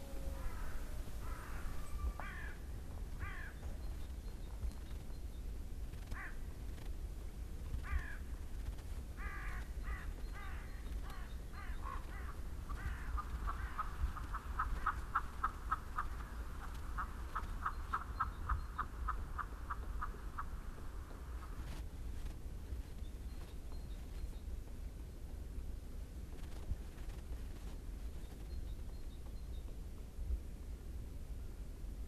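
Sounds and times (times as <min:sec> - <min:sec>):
bird calling: 0:00.0 - 0:02.6.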